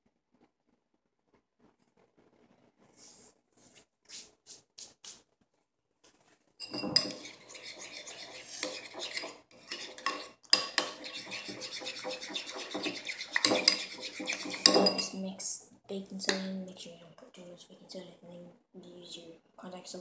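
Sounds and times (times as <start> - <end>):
hands rubbing: 2.9 - 5.3, 7.0 - 14.8
metal spoon scraping ceramic bowl: 6.6 - 15.2.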